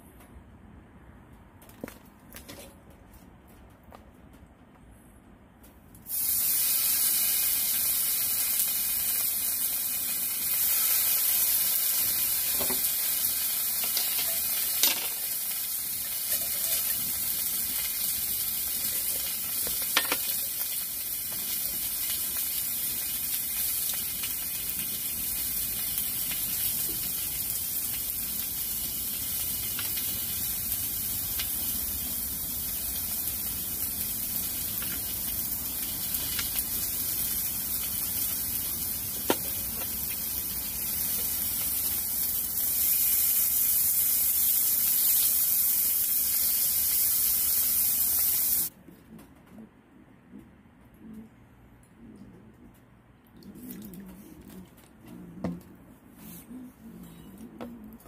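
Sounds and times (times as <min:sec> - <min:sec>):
beef sizzling on a griddle: 0:06.1 - 0:48.7.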